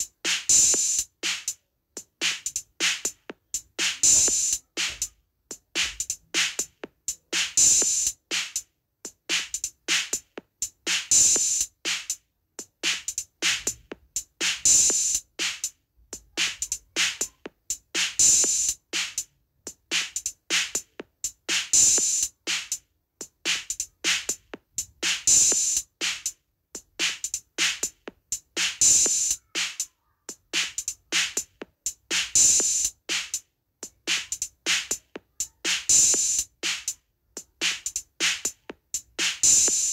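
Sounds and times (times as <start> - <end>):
rhythmic drum beat: 0.0 - 39.9.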